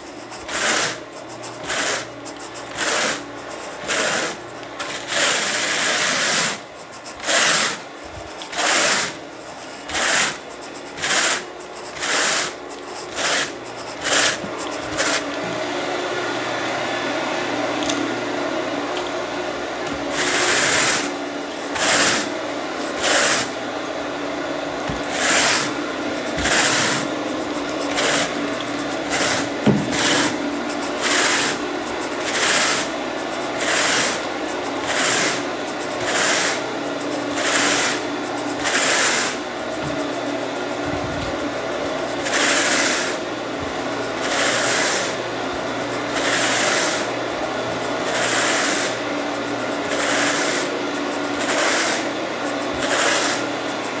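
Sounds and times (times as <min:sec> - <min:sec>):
carpet rake swishing: 0:00.0 - 0:15.6, 0:20.0 - 0:24.0, 0:24.8 - 0:54.0
steady low hum: 0:06.6 - 0:54.0.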